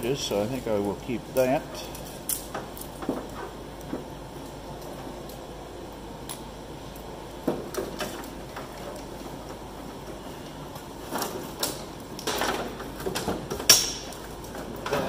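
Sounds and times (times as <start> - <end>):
clicks and knocks on sheet metal: 11.1 - 15.0.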